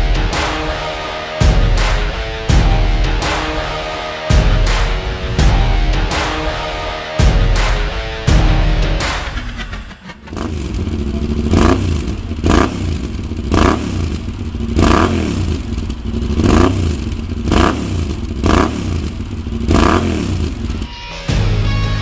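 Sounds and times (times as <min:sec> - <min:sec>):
motorcycle engine revving: 0:09.4 - 0:20.9.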